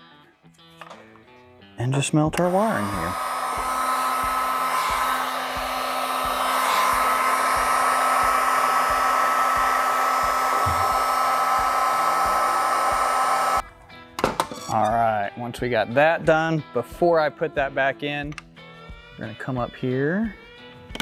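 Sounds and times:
heat gun fan whining: 0:02.4 - 0:13.6.

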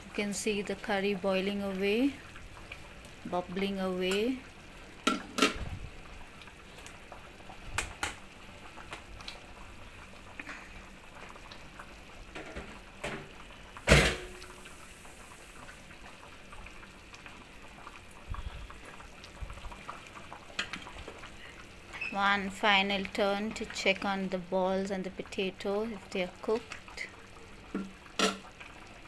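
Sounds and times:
curry bubbling in a pot: 0:00.0 - 0:29.0.

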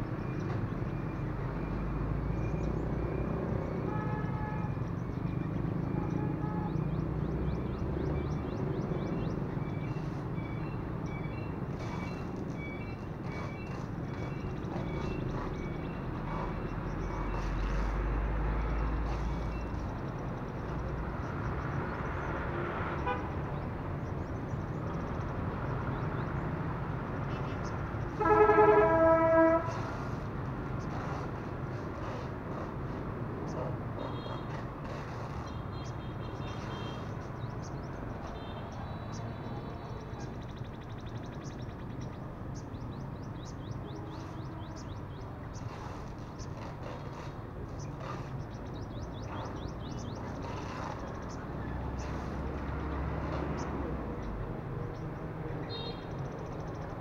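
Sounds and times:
small birds chirping: 0:04.7 - 0:22.5, 0:29.7 - 0:57.0
vehicle rumbling past: 0:04.8 - 0:57.0
car horn toot: 0:28.2 - 0:29.8.

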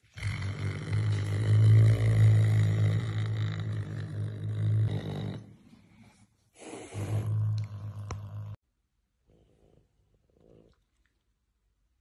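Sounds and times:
wild cat growling: 0:00.0 - 0:05.5.

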